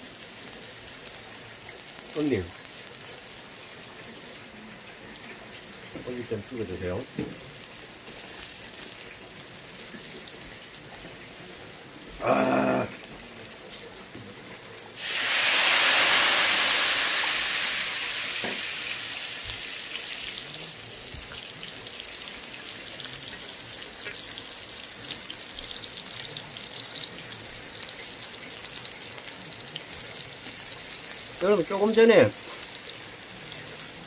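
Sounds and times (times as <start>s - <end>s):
meat sizzling on grill pan: 0.0s - 34.0s
loud burst of hissing: 15.0s - 20.1s.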